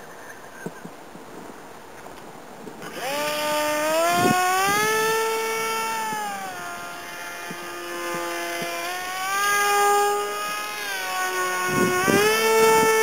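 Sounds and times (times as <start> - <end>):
model plane motor whining: 2.8 - 13.0.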